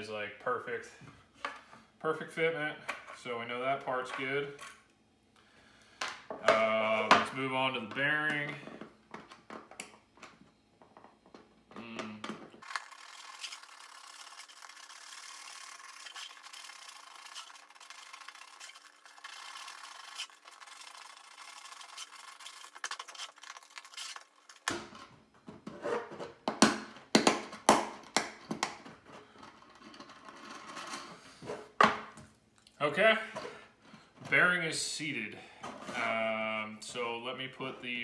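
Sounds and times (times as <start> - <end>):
sandpaper rubbing on plastic: 12.8 - 24.3.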